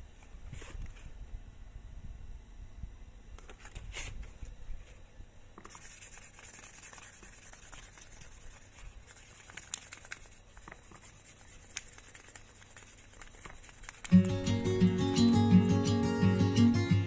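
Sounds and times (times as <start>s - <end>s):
sandpaper rubbing on a handle: 5.6s - 14.2s.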